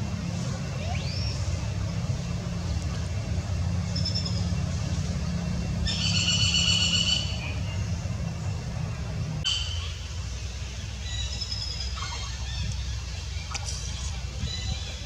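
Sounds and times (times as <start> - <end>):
steady low rumble: 0.0 - 15.0
infant monkey squeaks: 11.1 - 15.0.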